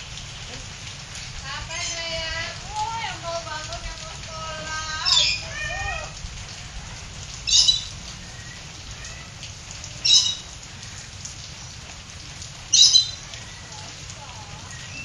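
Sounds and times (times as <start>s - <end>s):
steady rain falling: 0.0s - 15.0s
canary chirps: 5.0s - 5.5s, 7.5s - 9.2s, 10.0s - 10.5s, 12.7s - 13.6s.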